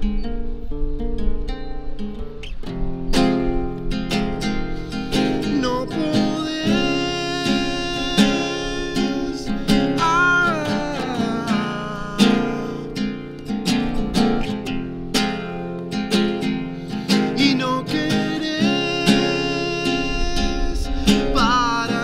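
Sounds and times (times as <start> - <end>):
acoustic guitar strumming: 0.0 - 22.0
man singing: 4.9 - 13.5, 17.0 - 22.0.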